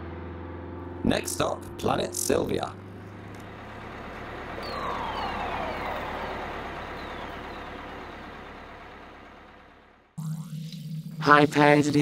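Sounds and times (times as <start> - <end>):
engine rumble: 0.0 - 11.8
falling whines: 3.4 - 12.0.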